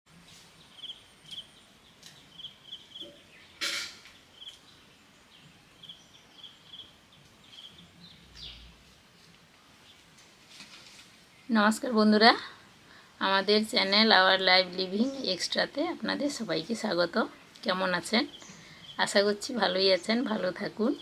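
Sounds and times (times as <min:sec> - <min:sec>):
small bird chirping: 0:00.6 - 0:08.7, 0:17.3 - 0:21.0
brief sharp noise: 0:03.6 - 0:04.1.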